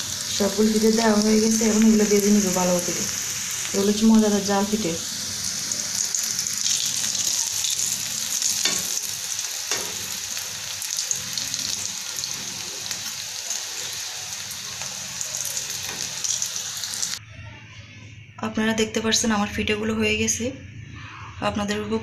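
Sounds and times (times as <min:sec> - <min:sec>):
deep-frying sizzle in oil: 0:00.0 - 0:17.2.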